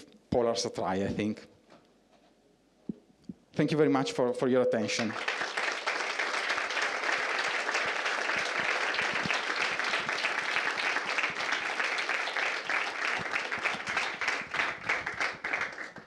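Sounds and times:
audience applauding: 4.9 - 16.0.

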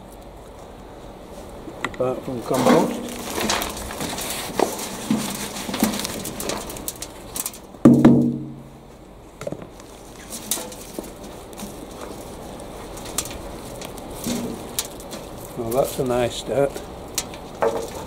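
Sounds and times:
gloved hands rustling compost: 0.0 - 7.8, 8.8 - 18.0
wheelbarrow ringing: 2.4 - 8.8, 10.3 - 12.2, 12.9 - 15.9, 17.1 - 18.0
loud bang in steel wheelbarrow: 2.5 - 3.8, 7.8 - 8.8
plastic pot knocking and scraping: 2.5 - 8.6, 17.3 - 18.0.

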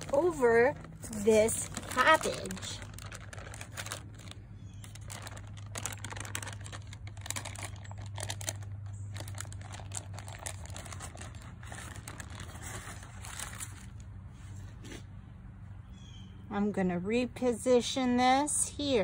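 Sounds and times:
baking paper crinkling: 0.0 - 15.0.

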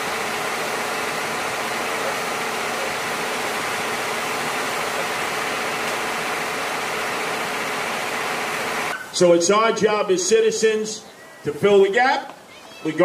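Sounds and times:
truck machinery humming: 0.0 - 9.2.

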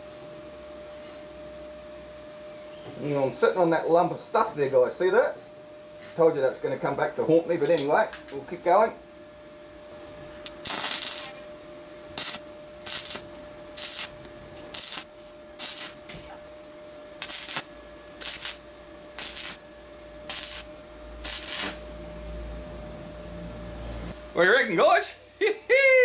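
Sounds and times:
welding arc crackling: 10.4 - 22.0.

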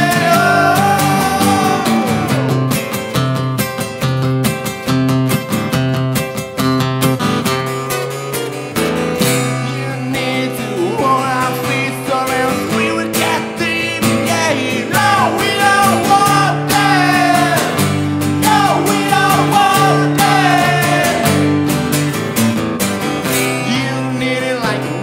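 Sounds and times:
man singing lead vocal: 0.0 - 2.9, 9.5 - 21.6, 23.5 - 25.0
voices singing along: 0.0 - 2.9, 9.8 - 21.6
acoustic guitars strummed: 0.0 - 25.0.

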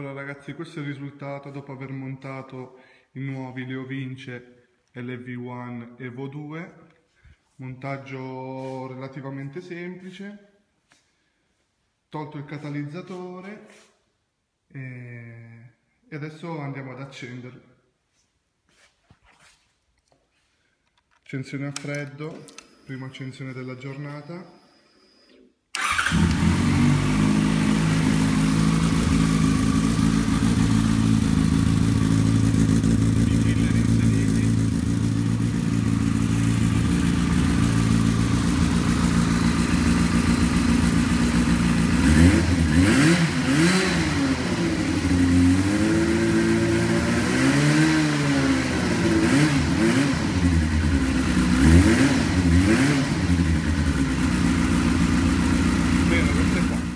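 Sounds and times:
motorcycle engine idling: 25.8 - 42.7, 53.2 - 56.9
motorcycle engine revving: 25.8 - 56.9.

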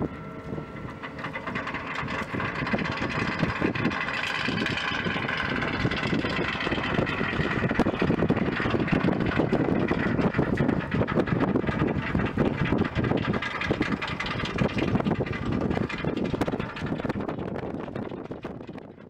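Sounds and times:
engine whine: 0.0 - 19.0
small boat engine running: 0.0 - 19.0.

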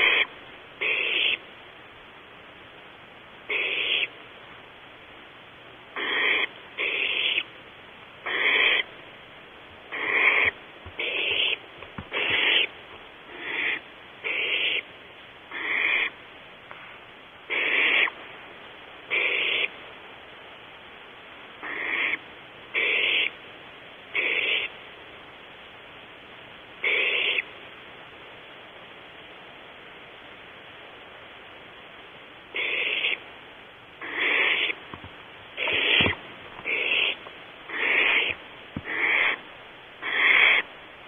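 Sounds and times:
owl nestlings hissing calls: 0.0 - 1.5, 3.4 - 4.2, 5.9 - 7.6, 8.2 - 8.9, 9.8 - 14.9, 15.5 - 18.2, 19.0 - 19.8, 21.6 - 23.4, 24.1 - 24.8, 26.8 - 27.5, 32.5 - 33.3, 33.9 - 40.8.

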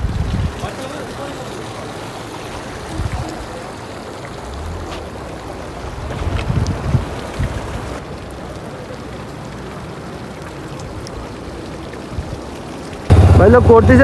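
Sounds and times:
water running over stones: 0.0 - 14.0
low bumps: 13.1 - 14.0.

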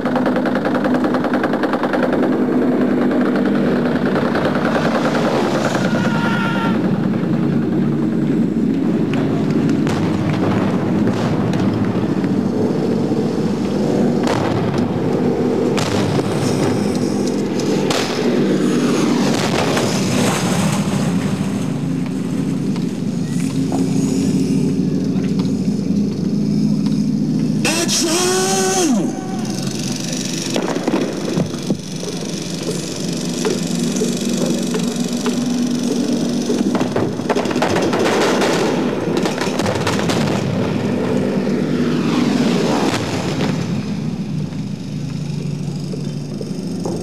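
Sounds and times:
sharp bangs of pyrotechnic charges: 0.0 - 23.2, 30.4 - 41.1, 42.7 - 44.6
aircraft engines droning: 0.0 - 47.0.

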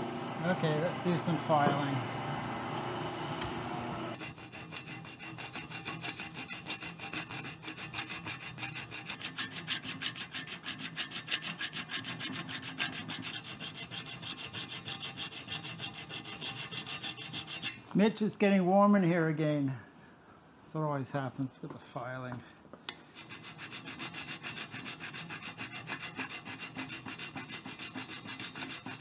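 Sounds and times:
steady hum: 0.0 - 4.3
hand file rasping on metal: 4.2 - 17.8, 23.1 - 29.0.

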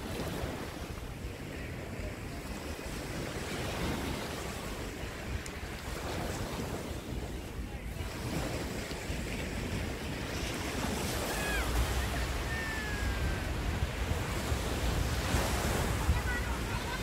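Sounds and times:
waves washing up a beach: 0.0 - 17.0
wind buffeting microphone: 0.0 - 17.0.

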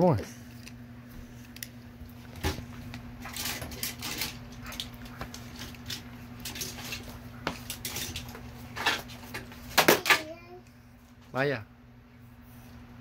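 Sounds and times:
toys and phone being handled: 2.4 - 10.4.

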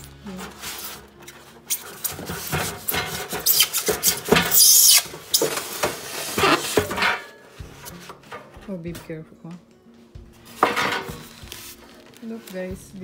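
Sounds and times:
scraping of foam and cardboard: 0.2 - 8.6, 10.4 - 13.0.

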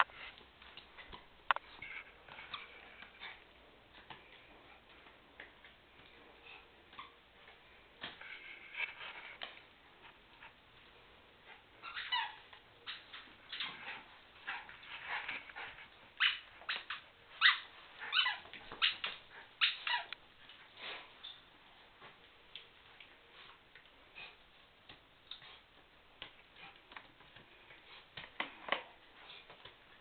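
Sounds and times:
dogs yipping and whining: 11.5 - 20.2.

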